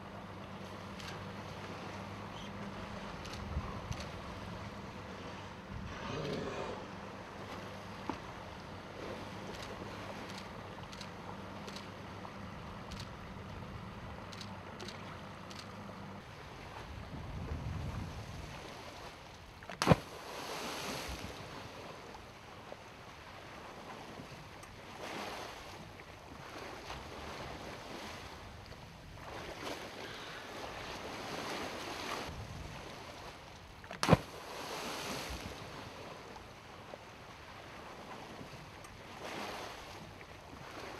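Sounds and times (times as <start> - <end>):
sea water washing around boat: 0.0 - 40.9
wind: 0.0 - 40.9
sharp loud slaps: 19.8 - 20.1, 34.0 - 34.3.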